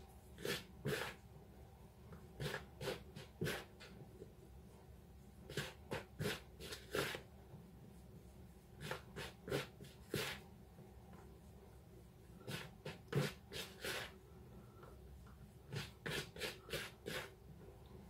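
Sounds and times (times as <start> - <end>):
fingertips rubbing flour: 0.4 - 1.2, 5.5 - 7.2, 8.0 - 10.5, 11.4 - 14.2, 15.2 - 17.4.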